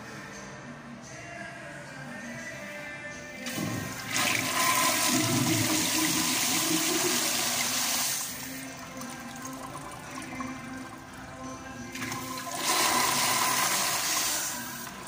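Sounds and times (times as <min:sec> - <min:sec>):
toilet flushing: 0:03.5 - 0:11.3, 0:11.9 - 0:15.0.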